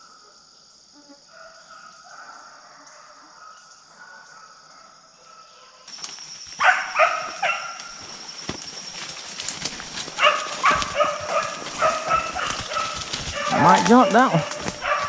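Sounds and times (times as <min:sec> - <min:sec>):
high insect drone: 0:00.0 - 0:15.0
dog barking: 0:01.3 - 0:05.9, 0:06.6 - 0:08.0, 0:10.2 - 0:15.0
footsteps crunching through dry leaves: 0:05.9 - 0:15.0.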